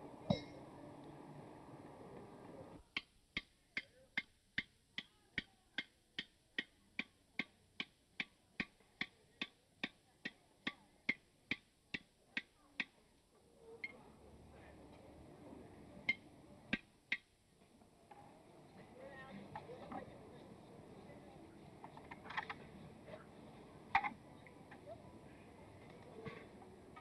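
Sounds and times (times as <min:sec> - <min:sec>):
hammer striking hot iron: 0:00.3 - 0:00.6.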